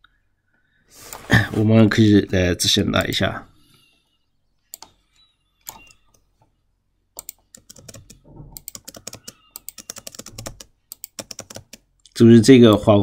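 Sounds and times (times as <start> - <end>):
computer keyboard typing: 7.2 - 11.9.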